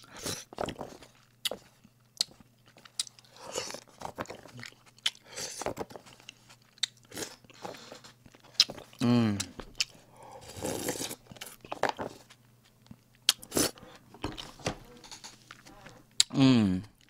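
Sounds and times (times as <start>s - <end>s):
man slurping and chewing noodles: 2.2s - 7.8s, 8.5s - 11.7s, 13.3s - 14.5s.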